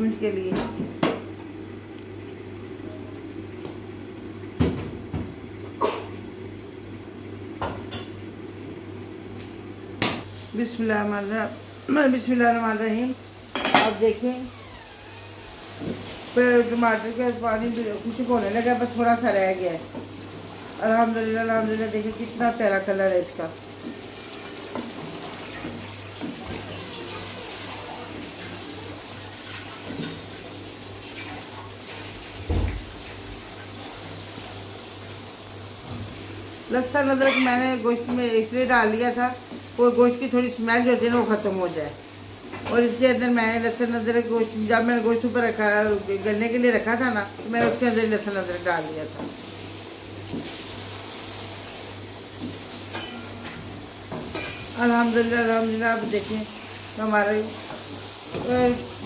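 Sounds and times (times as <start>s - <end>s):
low hum of gas stove: 0.0s - 59.0s
curry sizzling and bubbling in a pot: 14.9s - 36.7s, 48.8s - 59.0s.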